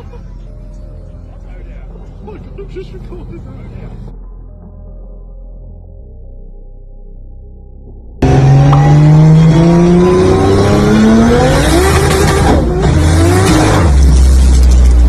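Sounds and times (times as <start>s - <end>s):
car engine revving: 8.2s - 15.0s.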